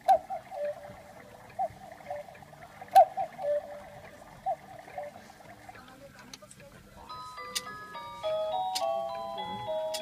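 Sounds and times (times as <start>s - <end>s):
cuckoo clock two-note call: 3.0s - 3.9s.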